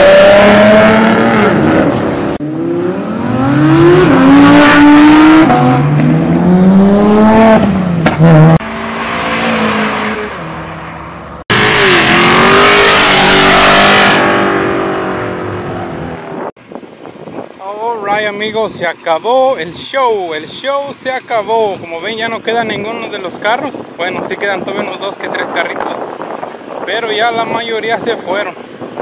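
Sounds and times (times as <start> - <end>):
sports car engines revving: 0.0 - 16.5, 21.7 - 29.0.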